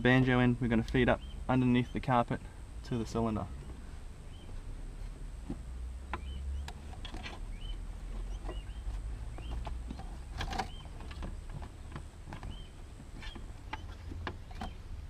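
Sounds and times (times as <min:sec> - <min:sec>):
faint bird chirping: 0:00.0 - 0:05.1, 0:06.0 - 0:15.0
steady low rumble: 0:00.0 - 0:15.0
carpet rustling and knocking: 0:04.4 - 0:14.8.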